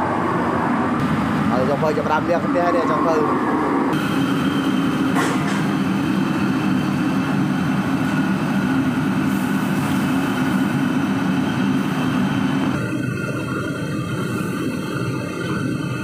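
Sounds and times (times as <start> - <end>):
gas burner roaring: 0.0 - 16.0.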